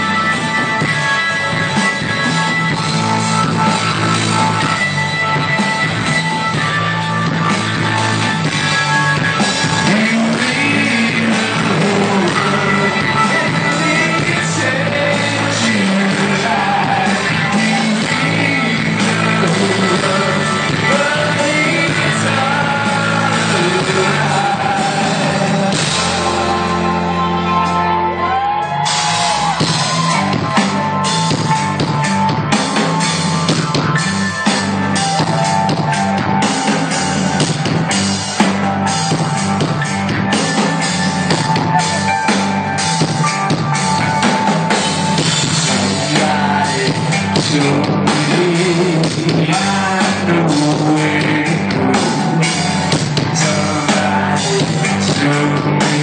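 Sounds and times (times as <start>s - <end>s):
live rock band playing: 0.0s - 56.0s
man singing: 9.2s - 27.6s, 45.6s - 56.0s.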